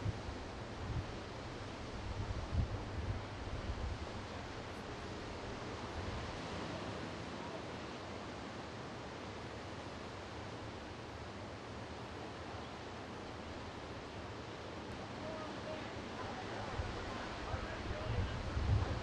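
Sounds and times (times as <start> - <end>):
wind buffeting microphone: 0.0 - 6.4, 16.2 - 19.0
steady outdoor hiss: 0.0 - 19.0.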